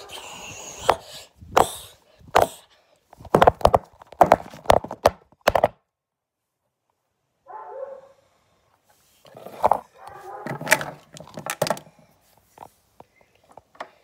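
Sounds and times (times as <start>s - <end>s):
phone and toys knocking: 3.2s - 5.8s.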